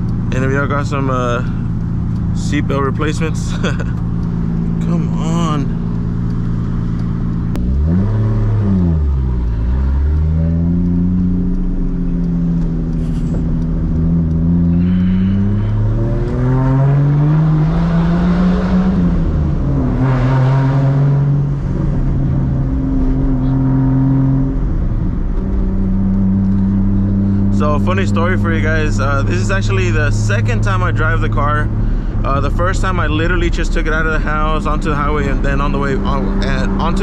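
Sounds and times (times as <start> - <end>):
car engine accelerating through gears: 0.0 - 37.0.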